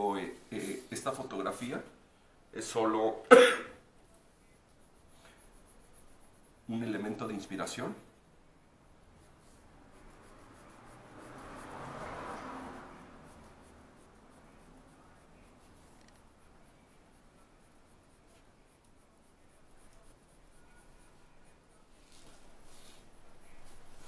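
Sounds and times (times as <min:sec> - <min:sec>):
pencil scratching on paper: 0:04.0 - 0:08.3, 0:09.0 - 0:24.0.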